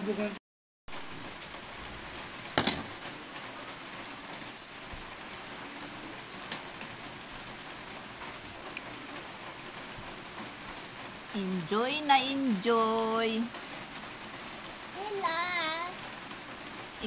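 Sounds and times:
rain hiss: 0:00.1 - 0:17.0.

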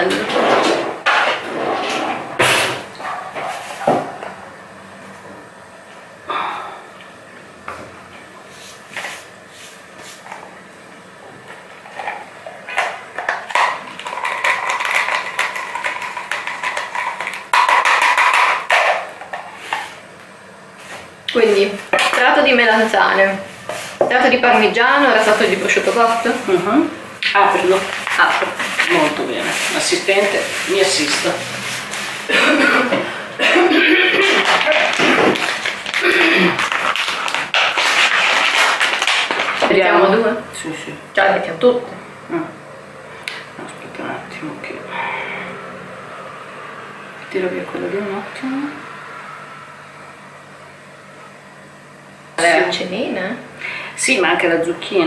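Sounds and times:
plastic film crinkling: 0:27.4 - 0:32.3, 0:34.2 - 0:39.8.

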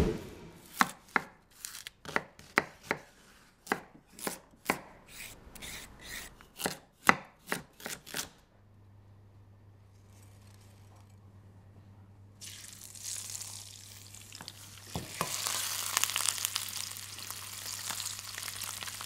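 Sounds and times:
knife chopping on wooden board: 0:02.1 - 0:04.9.

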